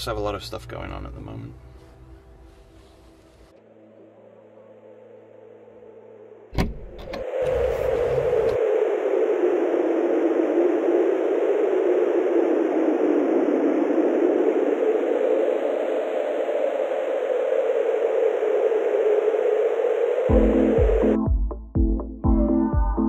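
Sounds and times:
static-like noise: 0:07.4 - 0:21.2
pulsing electronic bass: 0:20.3 - 0:23.0.

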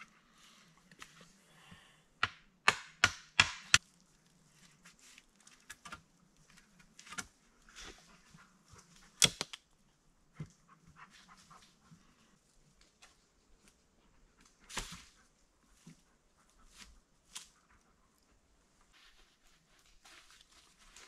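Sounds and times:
hand tool striking wood: 0:02.2 - 0:03.8.

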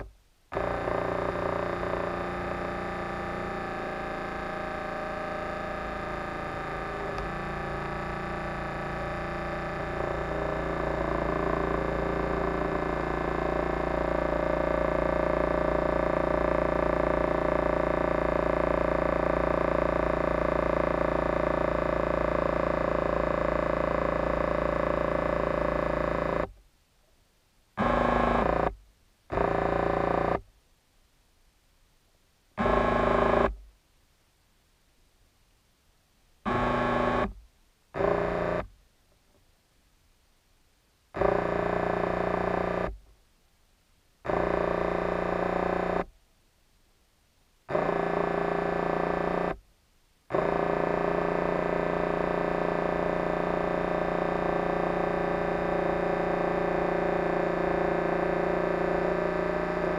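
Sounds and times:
electric motors whining: 0:00.0 - 0:26.5, 0:27.8 - 0:28.7, 0:29.3 - 0:30.4, 0:32.6 - 0:33.6, 0:38.0 - 0:38.7, 0:41.2 - 0:43.0, 0:44.3 - 0:46.1, 0:47.7 - 0:49.6, 0:50.3 - 0:59.9.

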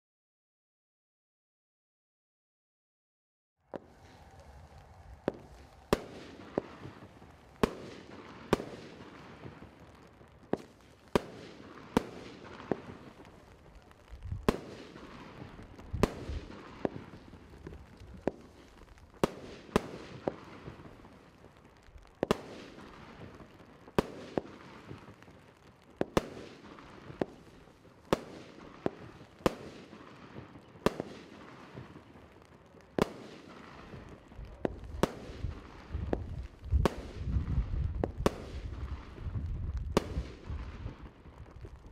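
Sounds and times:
firework hiss: 0:03.7 - 0:25.4
firework bangs: 0:03.7 - 0:41.9.

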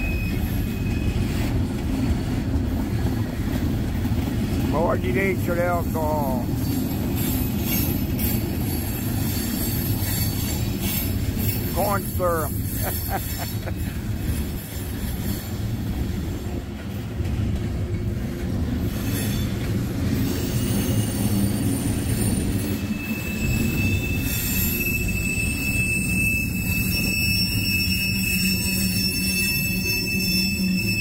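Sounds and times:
high wheel squeal: 0:00.0 - 0:01.7, 0:05.2 - 0:16.5, 0:18.7 - 0:31.0
train wheels rumbling on rails: 0:00.0 - 0:31.0.

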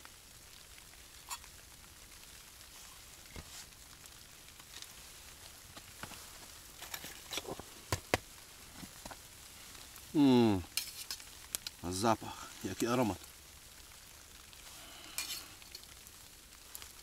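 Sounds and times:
campfire crackling and popping: 0:00.0 - 0:17.0
person making short voiced sound: 0:10.2 - 0:10.7.

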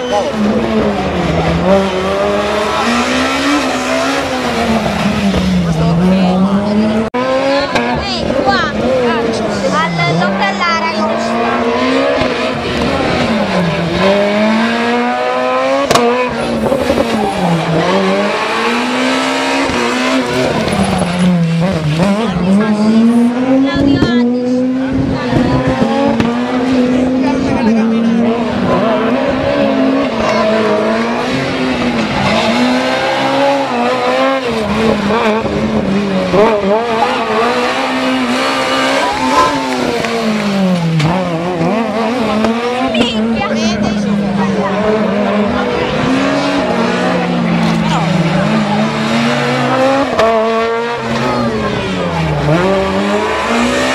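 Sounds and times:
rally car engine revving: 0:00.0 - 0:53.9.

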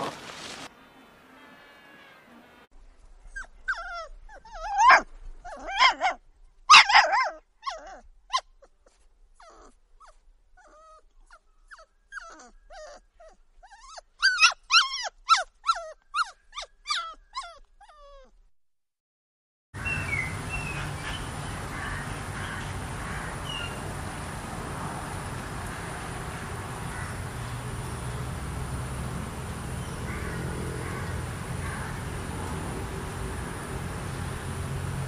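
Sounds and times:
puppy whimpering: 0:03.4 - 0:06.2, 0:09.4 - 0:18.4
puppy yapping and barking: 0:03.4 - 0:08.7, 0:09.4 - 0:18.3.

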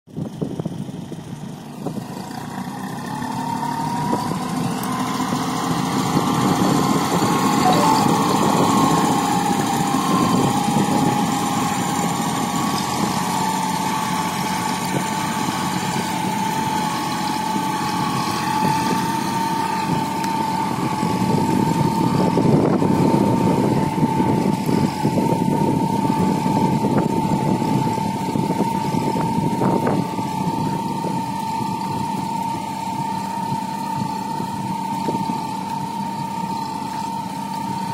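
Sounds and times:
tractor diesel engine running: 0:00.1 - 0:37.9
steady high whine: 0:07.2 - 0:10.4.

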